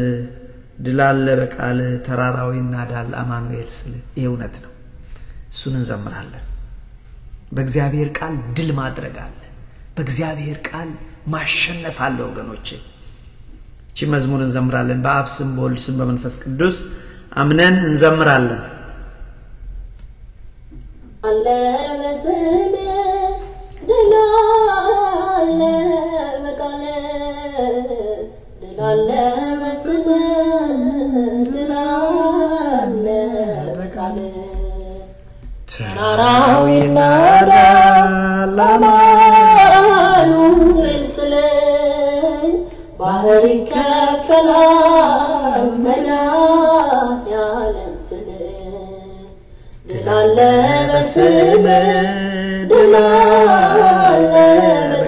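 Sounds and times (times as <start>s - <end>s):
person singing hymn unaccompanied: 21.0s - 55.0s.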